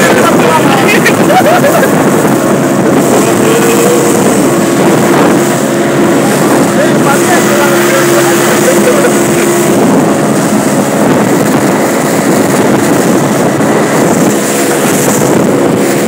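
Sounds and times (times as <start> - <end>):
outboard motor running: 0.0 - 16.0
wind on microphone: 0.0 - 16.0.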